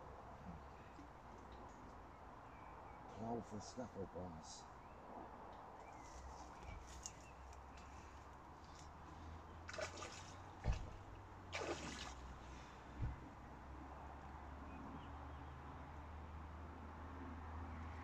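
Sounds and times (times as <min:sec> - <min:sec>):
fish splashing in water: 0:09.7 - 0:12.4
short dull thumps: 0:12.9 - 0:13.2.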